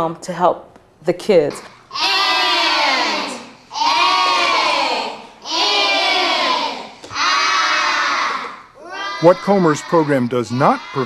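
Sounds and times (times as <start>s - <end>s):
children shouting in unison: 1.9s - 11.0s.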